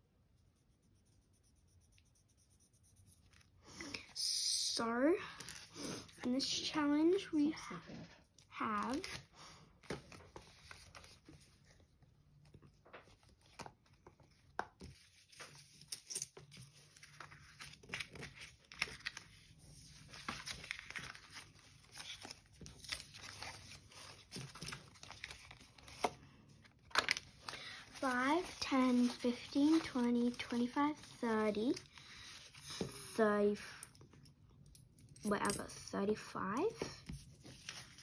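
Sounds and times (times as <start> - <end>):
banknotes and card rustling: 8.4 - 34.0, 36.5 - 38.0.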